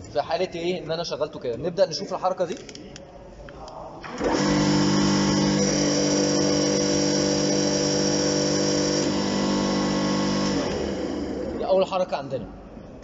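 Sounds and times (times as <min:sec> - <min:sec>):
hydraulic pump motor humming: 0:04.0 - 0:11.6.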